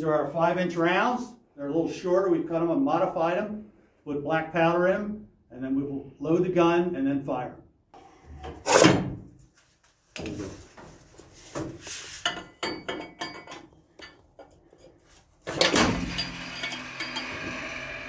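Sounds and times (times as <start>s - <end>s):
metal clanks and clinks: 12.2s - 14.9s, 15.6s - 17.6s.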